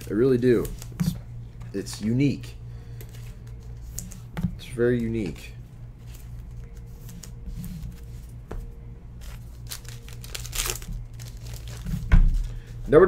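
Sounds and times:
foil wrapper crinkling: 0:09.2 - 0:12.9.

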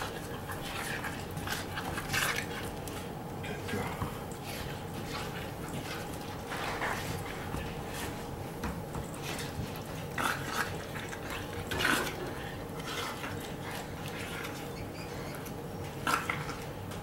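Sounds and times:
puppy scuffling on wooden floor: 0:03.9 - 0:17.0.

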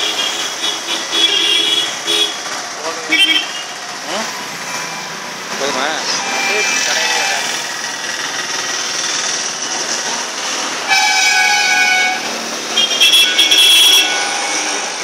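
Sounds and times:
traffic noise: 0:00.0 - 0:15.0
high-pitched horn tooting: 0:06.0 - 0:07.6, 0:10.8 - 0:15.0
long car horn blast: 0:10.9 - 0:14.9.

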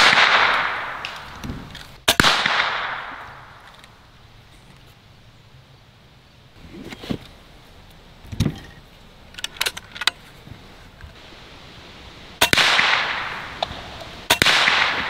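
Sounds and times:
air rifle shot crack: 0:00.0 - 0:04.0, 0:12.4 - 0:15.0.

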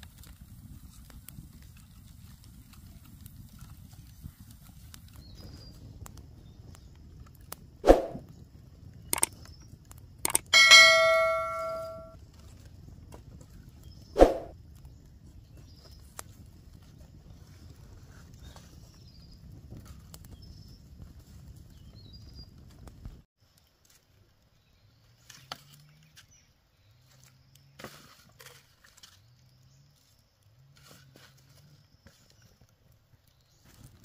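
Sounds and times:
metal object clanging: 0:10.3 - 0:12.2.

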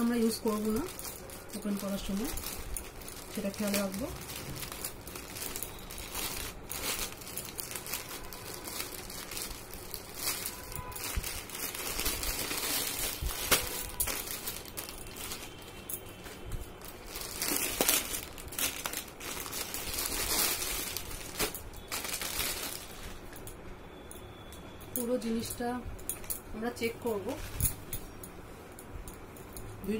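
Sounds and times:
packaging crinkling and tearing: 0:00.6 - 0:15.7, 0:16.7 - 0:23.2.

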